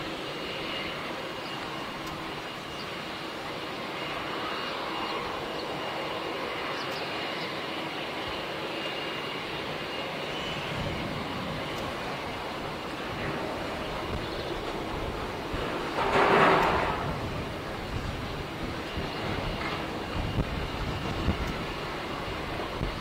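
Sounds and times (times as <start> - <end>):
aircraft engines running: 0.0 - 23.0
faint high whine: 0.0 - 23.0.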